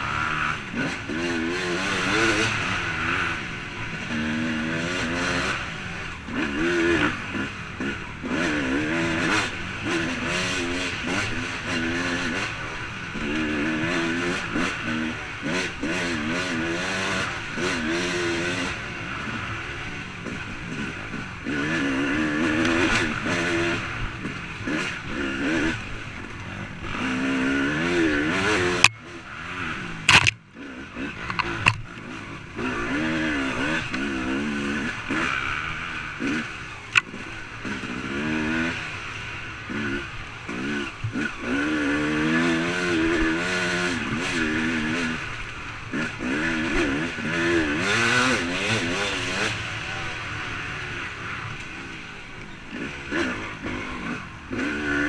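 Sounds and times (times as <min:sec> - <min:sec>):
dirt bike engine revving: 0:00.0 - 0:55.0
sharp knocks: 0:30.1 - 0:30.4.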